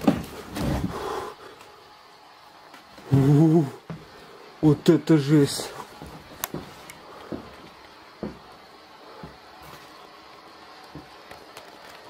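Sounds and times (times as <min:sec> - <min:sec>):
faint room hiss: 0:00.0 - 0:12.0
soft footsteps on wooden floor: 0:05.6 - 0:10.0, 0:10.9 - 0:11.2.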